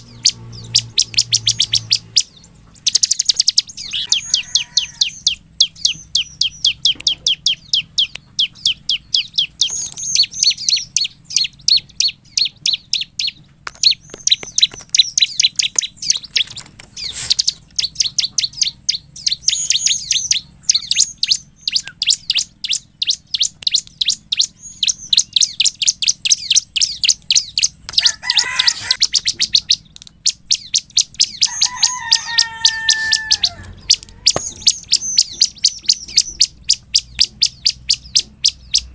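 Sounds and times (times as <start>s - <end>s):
bird singing rapid high notes: 0.0s - 38.9s.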